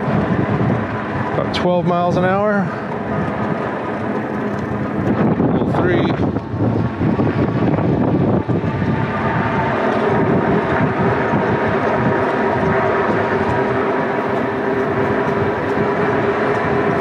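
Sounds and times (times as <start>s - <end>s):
tyres humming on asphalt: 0.0s - 17.0s
wind buffeting microphone: 0.0s - 17.0s
electric motor whining: 6.2s - 17.0s.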